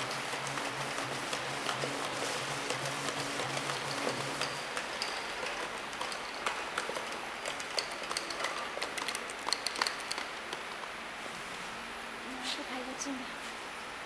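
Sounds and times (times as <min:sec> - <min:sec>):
labeling machine running: 0:00.0 - 0:10.2.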